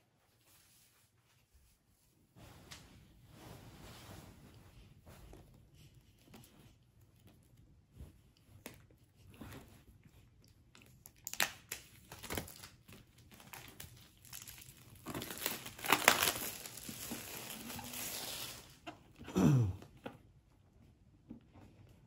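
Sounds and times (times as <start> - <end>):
plastic shrink-wrap crinkling: 11.0 - 18.8.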